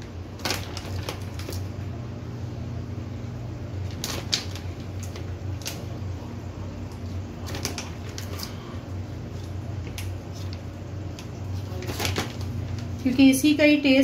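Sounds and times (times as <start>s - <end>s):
plastic bag crinkling: 0.0s - 1.8s, 3.8s - 6.2s, 6.8s - 13.1s
low steady hum: 0.0s - 14.0s.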